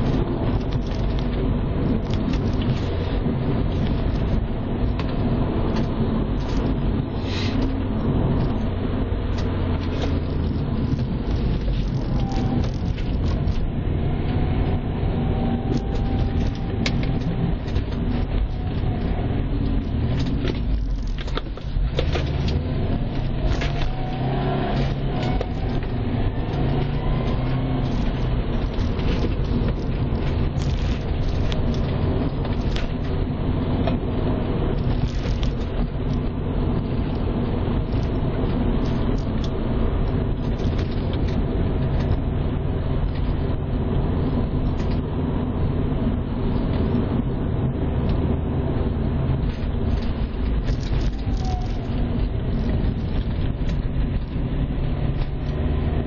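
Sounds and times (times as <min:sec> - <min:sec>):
car engine running under load: 0:00.0 - 0:56.0
tyre and road noise: 0:00.0 - 0:56.0.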